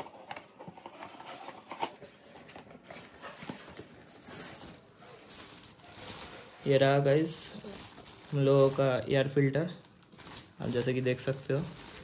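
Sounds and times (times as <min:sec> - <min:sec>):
plastic bag crinkling: 0:04.0 - 0:12.0.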